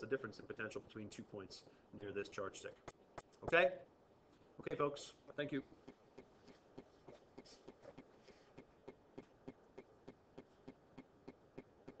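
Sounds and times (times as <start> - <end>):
faint regular ticking: 4.7 - 12.0.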